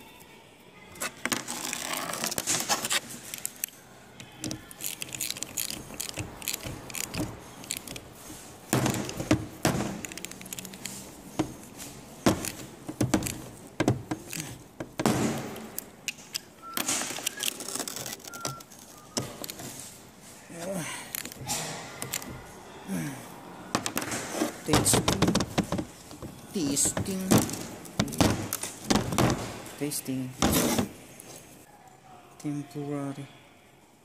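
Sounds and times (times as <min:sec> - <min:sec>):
ratchet wrench clicking: 0:04.6 - 0:08.1.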